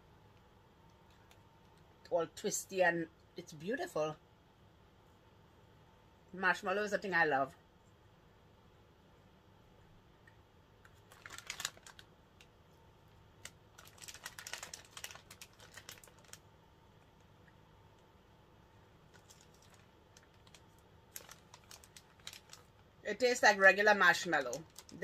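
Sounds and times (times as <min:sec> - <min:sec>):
plastic snack packet crinkling: 0:10.8 - 0:12.6, 0:13.2 - 0:16.5, 0:19.1 - 0:23.0, 0:24.0 - 0:25.0.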